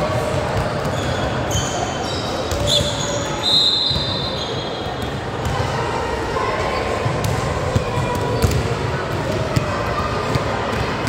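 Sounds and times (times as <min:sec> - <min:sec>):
sneakers squeaking: 0:00.2 - 0:05.8, 0:07.2 - 0:11.0
basketball bouncing: 0:07.2 - 0:09.7.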